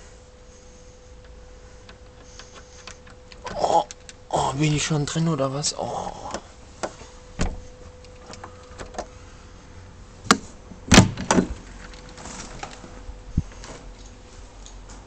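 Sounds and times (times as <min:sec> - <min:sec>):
door clicks and knocks: 0:01.9 - 0:04.2, 0:06.3 - 0:09.1, 0:10.3 - 0:11.6
door thud: 0:07.4 - 0:07.7, 0:10.9 - 0:11.6.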